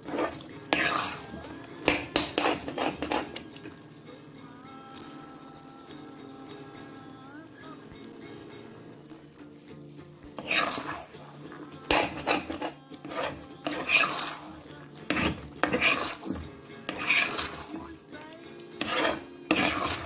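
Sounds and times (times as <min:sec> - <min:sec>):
metal ladle scraping iron pan: 0:00.0 - 0:03.8, 0:10.2 - 0:18.0, 0:18.8 - 0:20.0.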